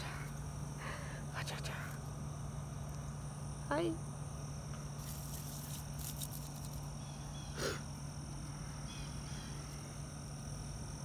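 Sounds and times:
steady low hum: 0.0s - 11.0s
rustle on gravel: 5.0s - 7.0s.

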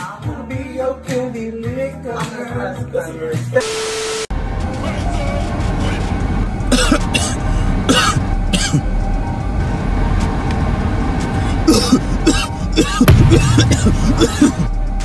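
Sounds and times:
man coughing harshly: 6.7s - 8.8s, 11.6s - 14.8s.

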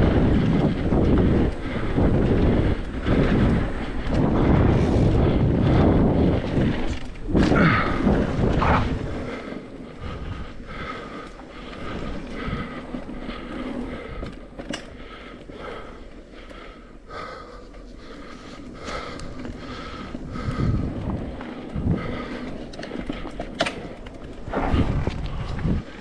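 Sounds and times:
bike rattling on dirt: 0.0s - 26.0s
wind buffeting microphone: 0.0s - 26.0s.

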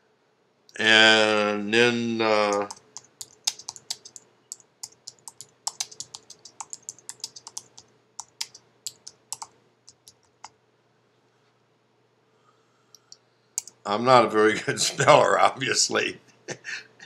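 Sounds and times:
keyboard key clicks: 2.5s - 4.2s.

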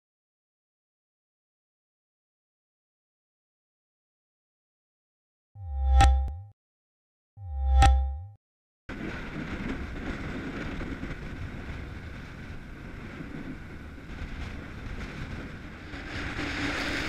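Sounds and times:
wind buffeting microphone: 8.9s - 17.0s.

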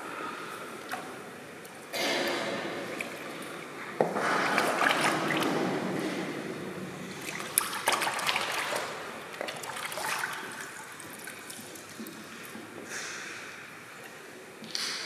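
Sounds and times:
feet wading through shallow water: 2.3s - 12.5s.

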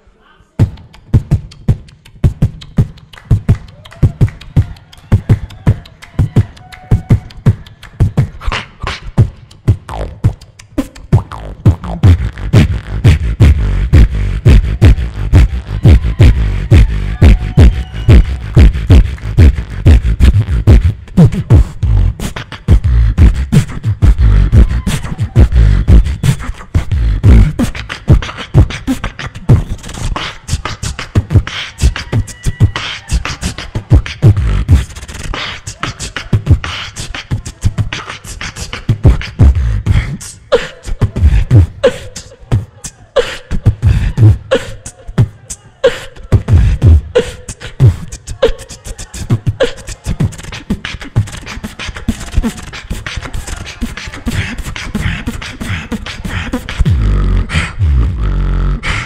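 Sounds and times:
beatboxing into a microphone: 0.5s - 59.0s
short pitched vocal notes: 8.4s - 59.0s.

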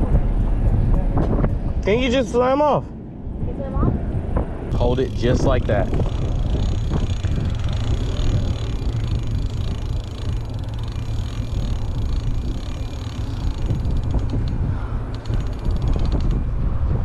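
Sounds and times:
wind buffeting microphone: 0.0s - 17.0s
faint rapid ticks: 4.8s - 16.4s.

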